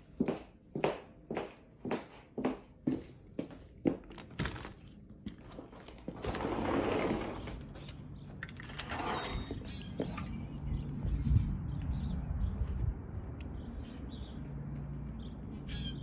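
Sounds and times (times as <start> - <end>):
sliding glass door rolling open: 6.2 - 7.7, 8.6 - 9.7.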